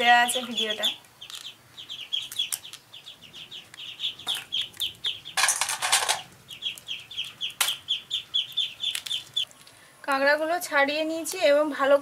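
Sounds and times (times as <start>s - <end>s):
birds chirping: 0.0s - 9.9s
crab shells cracking: 4.2s - 9.8s.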